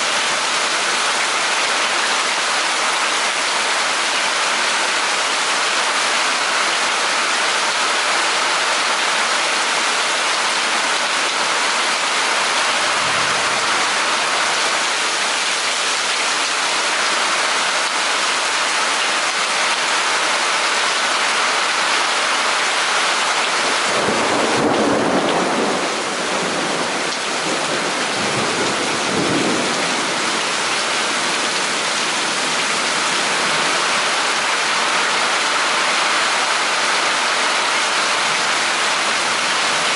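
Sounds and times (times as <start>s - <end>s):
heavy rain: 0.0s - 39.9s
thunder rumbling: 23.9s - 30.4s.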